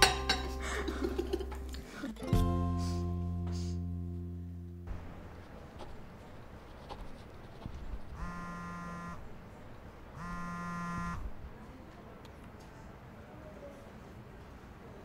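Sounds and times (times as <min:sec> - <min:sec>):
phone vibrating on wooden table: 0:08.2 - 0:09.2, 0:10.2 - 0:11.3.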